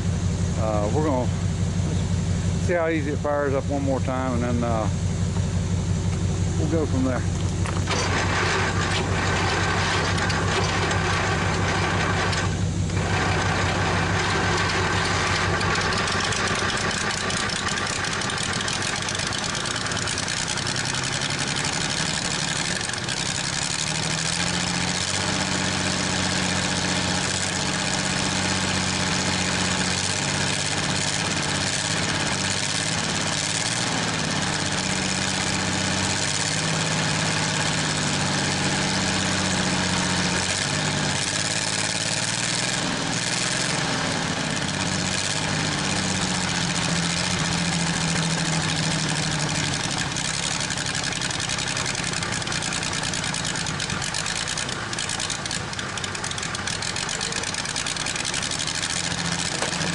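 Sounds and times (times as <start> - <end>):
tractor engine running: 0.0 - 59.9
water pump rattle: 7.6 - 25.1, 46.0 - 59.9.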